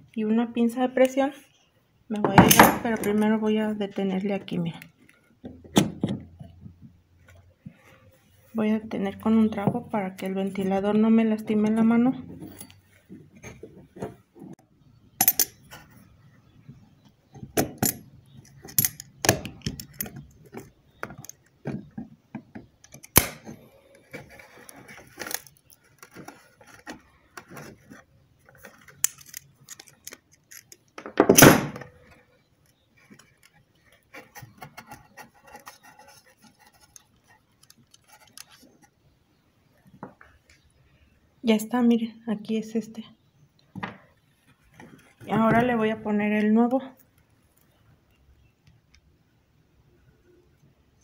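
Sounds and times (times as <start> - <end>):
metal tools clinking and scraping: 12.3 - 13.6, 15.2 - 15.9, 17.6 - 21.3, 28.6 - 32.1.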